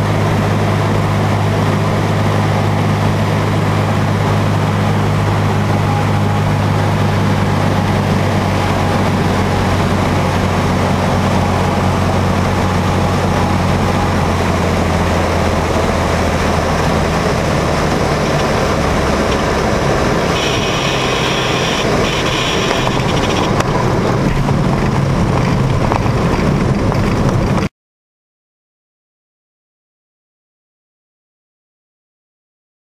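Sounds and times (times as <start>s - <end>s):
propeller plane engine droning: 0.0s - 27.7s
high-pitched tone: 20.2s - 23.6s.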